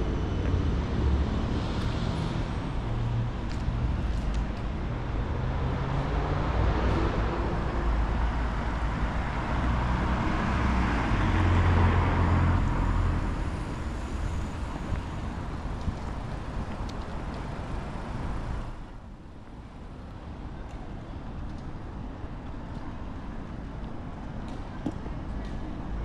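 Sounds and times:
low engine rumble of traffic: 0.0 - 26.0.

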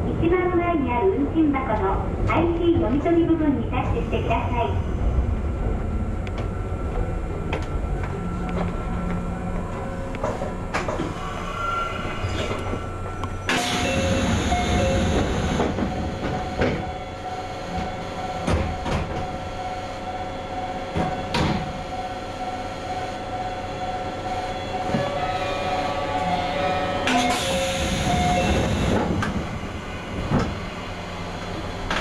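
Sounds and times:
electric train hum: 0.0 - 32.0.

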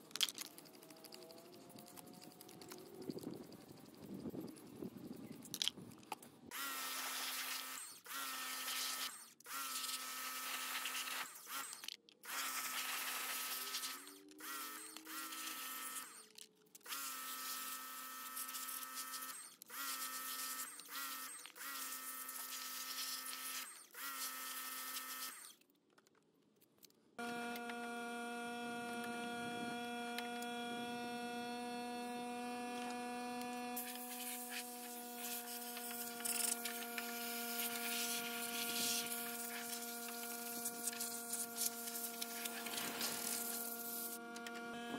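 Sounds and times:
pressure washer spraying: 33.8 - 44.2.

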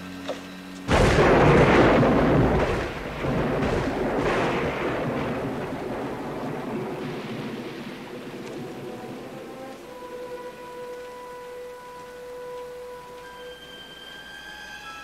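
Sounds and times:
falling rain: 0.0 - 15.0
thunder rolling: 0.9 - 11.0.

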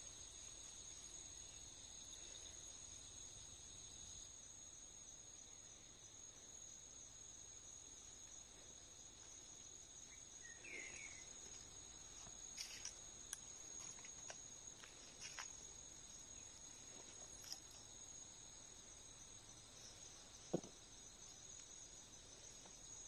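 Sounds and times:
high-pitched insect trill: 0.0 - 23.0.

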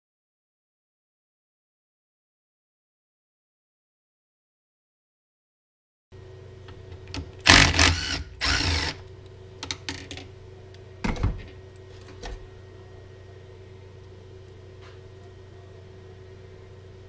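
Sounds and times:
cordless drill whirring: 7.4 - 9.0.

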